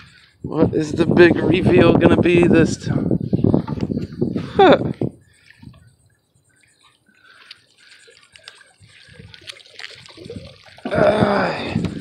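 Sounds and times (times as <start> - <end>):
water trickling and dripping: 6.7 - 12.0.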